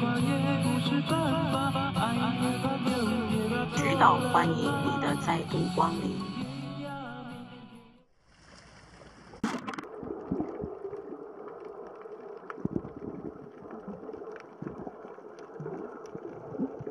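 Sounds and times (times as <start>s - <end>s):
muffled underwater rumbling wash: 9.2s - 16.9s.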